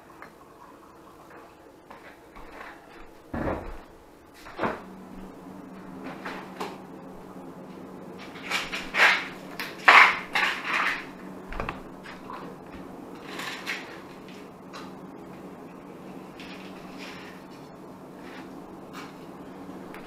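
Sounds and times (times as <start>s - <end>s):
plate clattering and scraping on tile: 9.9s - 11.1s.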